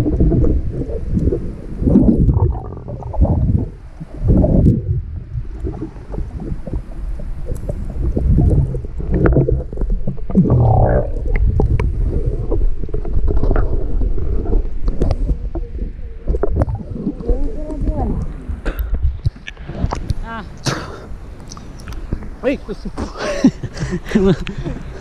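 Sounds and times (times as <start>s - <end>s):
muffled underwater sloshing: 0.0s - 22.4s
underwater clicks and pops: 5.4s - 22.4s.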